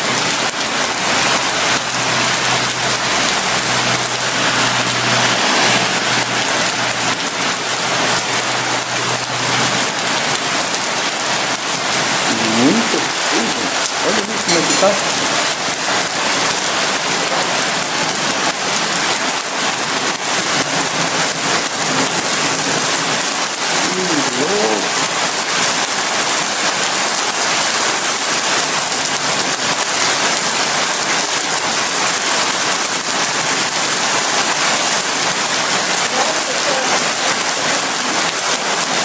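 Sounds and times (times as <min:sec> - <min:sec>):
heavy rain hiss: 0:00.0 - 0:39.0.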